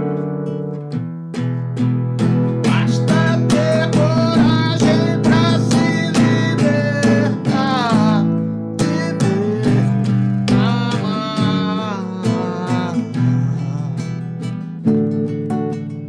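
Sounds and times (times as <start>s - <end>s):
classical guitar strumming: 0.0s - 16.0s
man singing: 2.4s - 14.8s.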